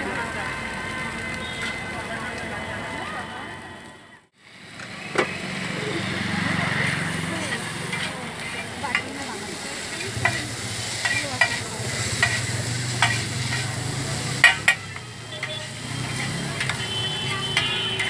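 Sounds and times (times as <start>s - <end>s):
frying sizzle: 0.0s - 3.5s, 4.4s - 18.0s
spatulas scraping noodles on griddle: 6.8s - 18.0s
spatulas clacking on metal: 9.9s - 16.9s, 17.5s - 18.0s.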